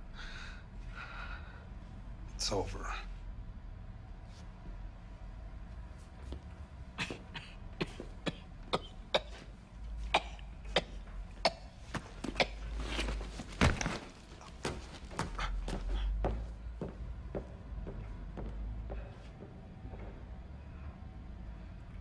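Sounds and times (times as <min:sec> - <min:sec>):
man coughing: 0:10.2 - 0:12.8.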